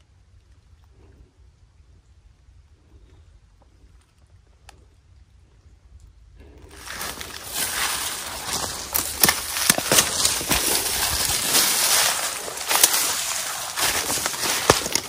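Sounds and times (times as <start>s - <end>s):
footsteps crunching through dry leaves: 6.7s - 15.0s.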